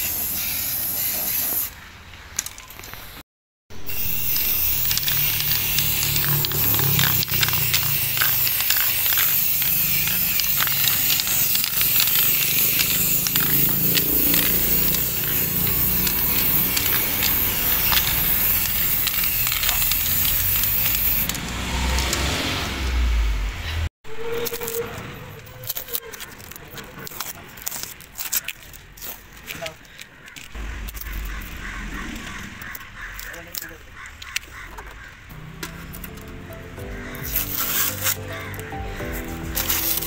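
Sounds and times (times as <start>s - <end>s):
aerosol spray paint hissing: 0.0s - 1.8s, 3.8s - 22.1s, 37.0s - 40.0s
low rumble: 30.6s - 33.2s.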